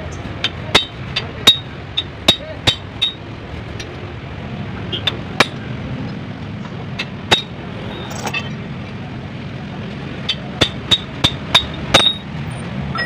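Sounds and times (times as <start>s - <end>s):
low shop hum: 0.0s - 13.0s
metal parts clinking on engine block: 8.1s - 8.6s.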